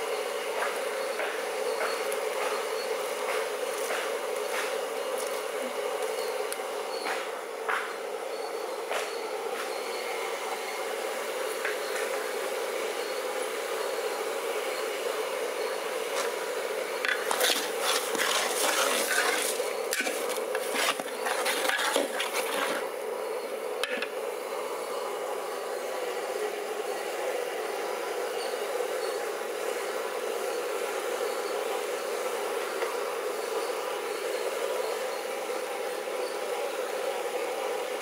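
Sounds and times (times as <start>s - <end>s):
steady hiss: 0.0s - 38.0s
metal ladle scraping a pot: 17.1s - 22.8s.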